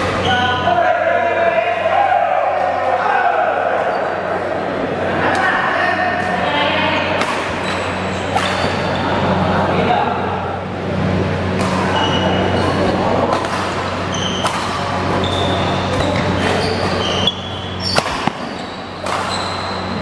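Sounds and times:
murmur of voices: 0:00.0 - 0:20.0
steady low hum: 0:00.0 - 0:20.0
sneaker squeaks on court floor: 0:00.1 - 0:00.6, 0:07.6 - 0:09.2, 0:11.7 - 0:20.0
rackets striking shuttlecock: 0:07.2 - 0:08.9, 0:11.5 - 0:20.0.

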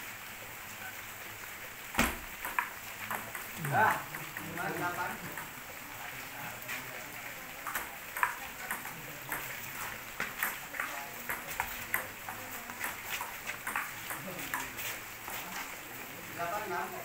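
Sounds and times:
ping pong ball clicking: 0:02.0 - 0:05.6, 0:07.6 - 0:09.6, 0:10.2 - 0:14.7.

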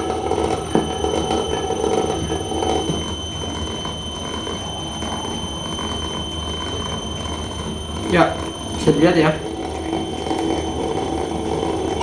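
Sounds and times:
electric motor whirring with whine: 0:00.0 - 0:12.0.

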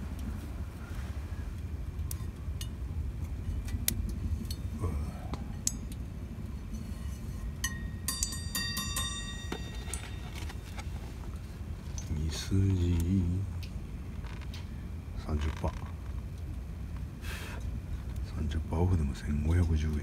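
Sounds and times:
low rumble: 0:00.0 - 0:20.0
glassy clinks: 0:07.6 - 0:10.5.

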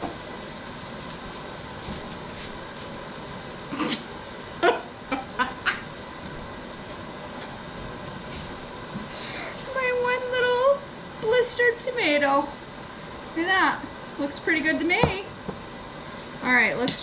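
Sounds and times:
woman laughing: 0:04.6 - 0:05.9
dishwasher running: 0:14.5 - 0:15.7.

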